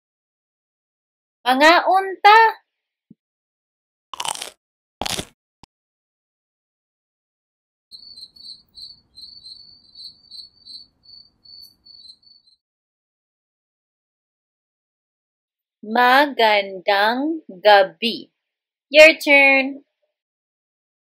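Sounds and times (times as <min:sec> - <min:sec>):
cricket chirps: 0:07.9 - 0:12.6.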